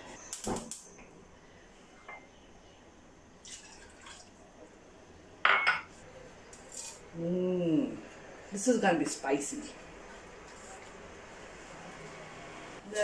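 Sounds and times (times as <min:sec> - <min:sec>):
liquid poured into frying pan: 0:03.4 - 0:04.3.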